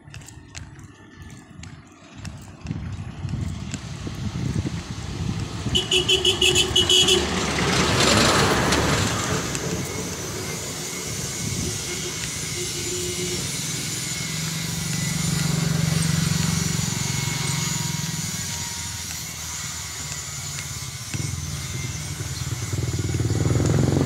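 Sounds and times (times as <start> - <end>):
motorcycle engine hum: 0.0 - 24.0
vehicle swishing past: 5.1 - 18.9, 21.3 - 24.0.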